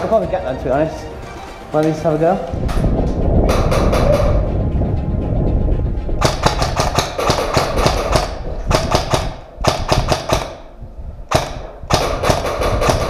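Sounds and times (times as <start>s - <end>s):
airsoft rifle rapid shots: 6.2s - 10.7s, 11.3s - 13.0s.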